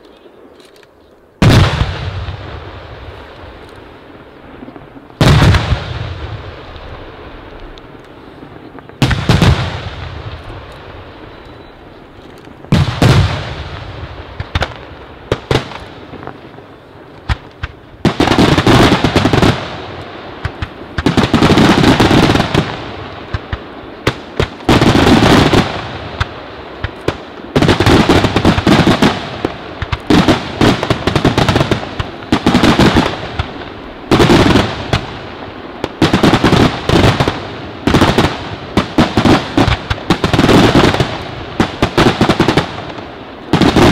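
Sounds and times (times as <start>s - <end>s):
firework bangs: 1.4s - 43.9s
rapid crackling firework reports: 1.4s - 43.9s.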